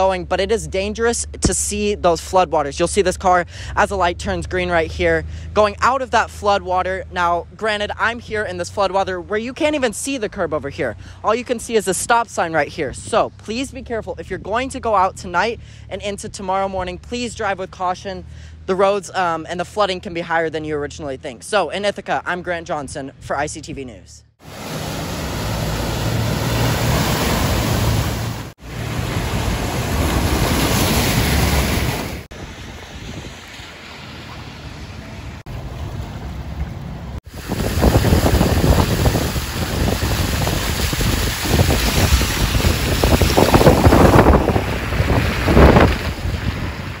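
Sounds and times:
car splashing through floodwater: 24.4 - 47.0
wind buffeting microphone: 27.4 - 33.5, 36.3 - 47.0.

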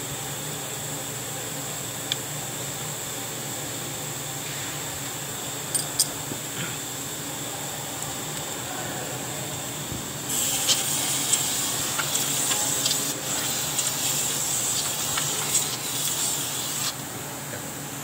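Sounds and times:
aerosol spray can hissing: 10.3 - 17.0.

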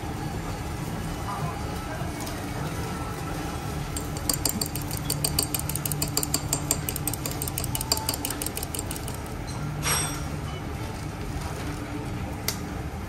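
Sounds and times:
chopsticks clicking against dish: 4.0 - 9.3.

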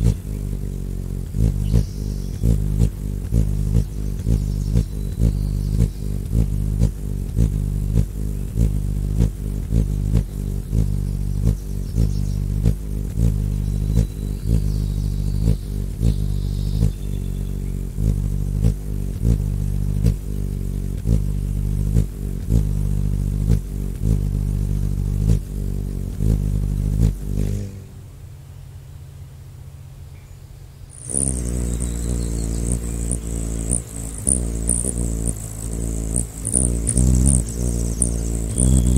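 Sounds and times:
hummingbird wings humming: 0.0 - 29.4, 30.7 - 38.9
faint high chirps: 30.2 - 35.4, 36.1 - 38.9.

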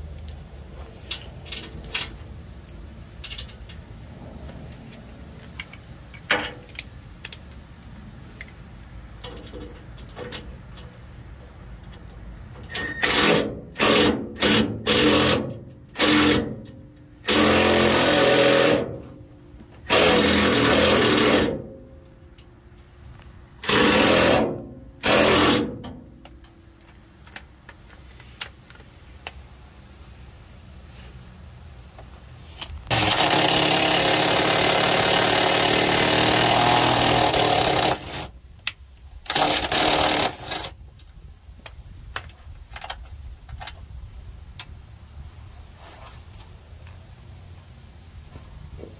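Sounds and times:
impact driver rattling: 12.8 - 19.1, 19.8 - 21.9, 23.6 - 26.2, 32.9 - 38.3, 39.3 - 40.8.

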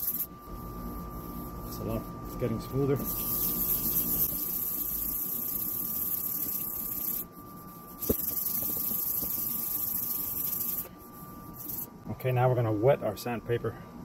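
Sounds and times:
sandpaper rubbing on plastic: 1.8 - 10.9.

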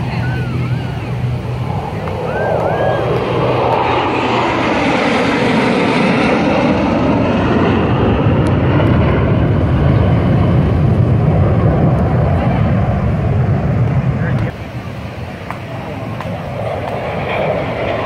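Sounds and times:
jets flying past: 0.0 - 18.0.

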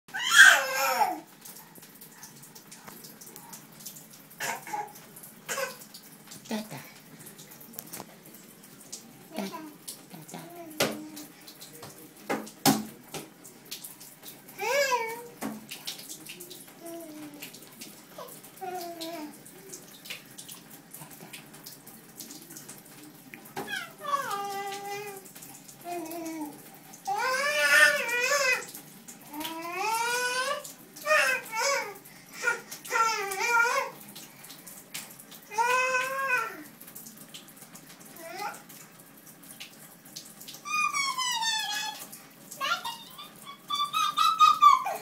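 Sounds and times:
toddler vocalizing: 0.1 - 1.2, 9.3 - 11.3, 14.6 - 15.4, 23.6 - 28.7, 29.3 - 34.0, 38.2 - 38.6, 40.6 - 42.0, 42.6 - 45.0
water hissing in a bathtub: 0.1 - 45.0
baby squealing: 40.7 - 42.0, 42.6 - 45.0.

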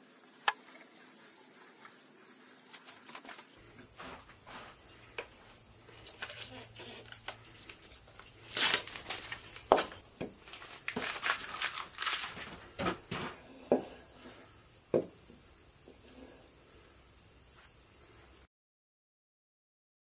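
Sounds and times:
masking tape peeling and crinkling: 5.9 - 13.3.

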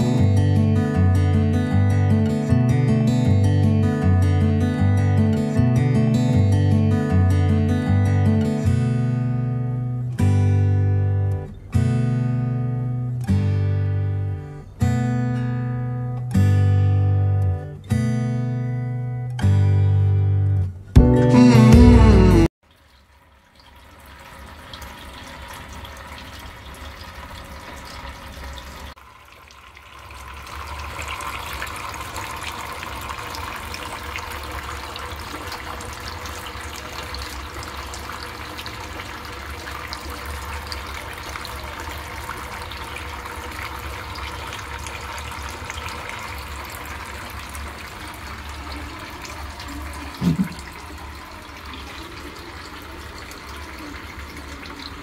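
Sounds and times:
fountain water splashing trickle: 22.6 - 55.0.

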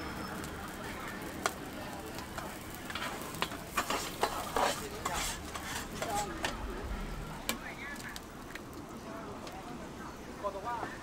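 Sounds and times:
rice sizzling on griddle: 0.0 - 11.0
spatula clicks and scrapes: 2.3 - 6.6.

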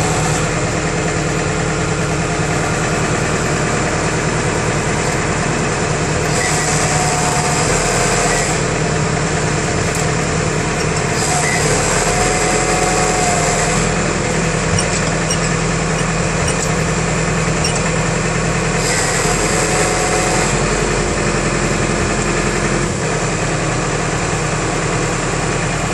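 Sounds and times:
tractor engine running: 0.0 - 25.9
hydraulic oil hissing: 4.6 - 22.7.

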